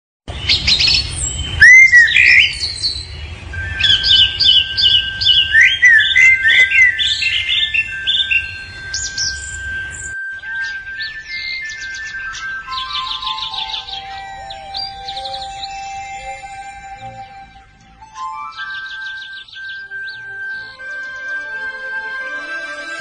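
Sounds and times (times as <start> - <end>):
swallows chirping: 0.3 - 21.6
steady high tone: 3.4 - 23.0.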